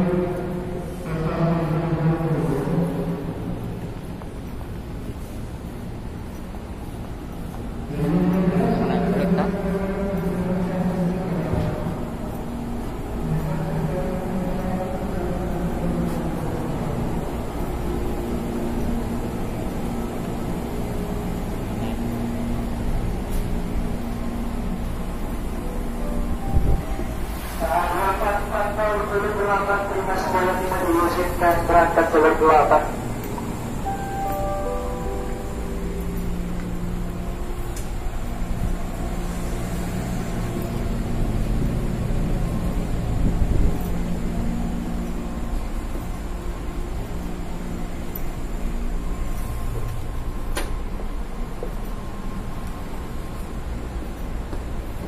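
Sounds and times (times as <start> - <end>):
electric train humming: 0.0 - 55.0
steady machine tones: 28.2 - 55.0.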